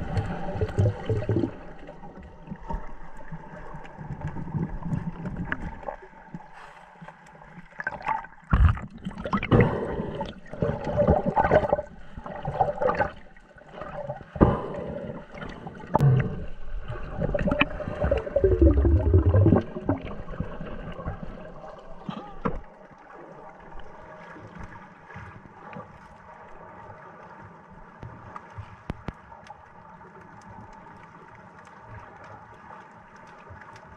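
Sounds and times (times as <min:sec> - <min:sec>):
water swishing and gurgling: 0:00.0 - 0:33.9.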